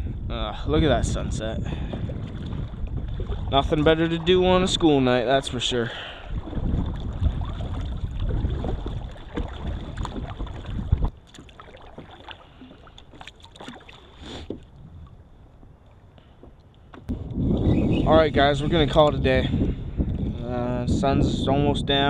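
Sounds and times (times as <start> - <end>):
wind rumble on microphone: 0.0 - 11.6, 14.4 - 16.2, 16.8 - 22.0
water lapping: 1.0 - 17.1
paddle strokes splashing: 1.7 - 14.8.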